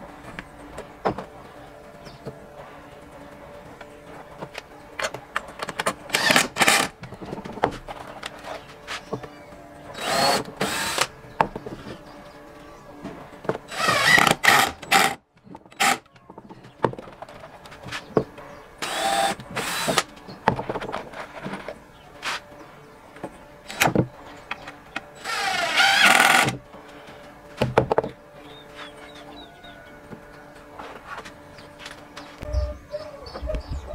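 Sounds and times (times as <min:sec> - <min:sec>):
cordless drill driving screws: 0:06.1 - 0:06.9, 0:10.0 - 0:11.1, 0:13.7 - 0:15.2, 0:15.8 - 0:16.0, 0:18.8 - 0:20.1, 0:25.2 - 0:26.6.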